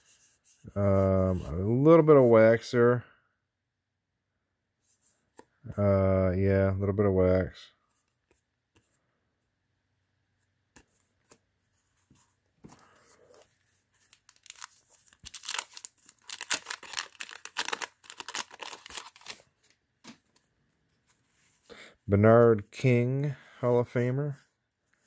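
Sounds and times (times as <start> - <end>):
paper wrapper tearing and crinkling: 14.0 - 19.8.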